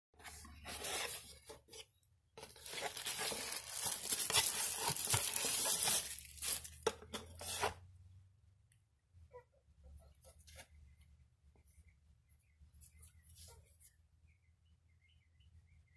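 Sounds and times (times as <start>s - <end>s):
cardboard box opening: 0.3s - 1.8s, 2.4s - 7.8s
packaging rustling: 2.4s - 7.7s.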